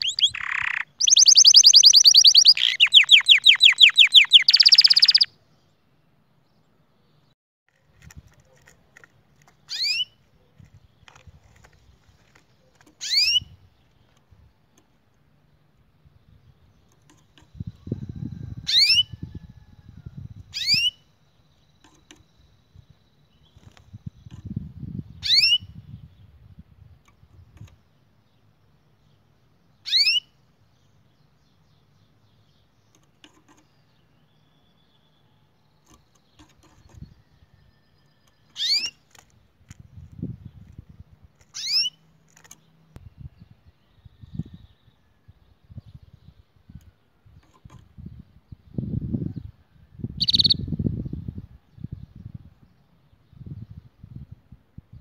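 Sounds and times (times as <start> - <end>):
canary chirps: 0.0 - 5.4, 8.5 - 14.2, 16.7 - 19.7, 20.3 - 25.9, 29.6 - 39.3, 41.4 - 42.8, 50.1 - 50.7.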